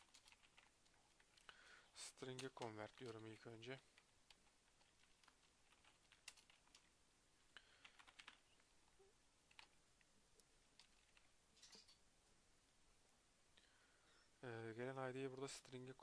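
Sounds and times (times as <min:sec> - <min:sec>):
computer keyboard clicking: 0:00.0 - 0:01.5, 0:02.3 - 0:03.4, 0:04.3 - 0:06.9, 0:07.8 - 0:08.6, 0:09.5 - 0:09.8, 0:10.8 - 0:11.3
computer mouse clicking: 0:03.9 - 0:06.9.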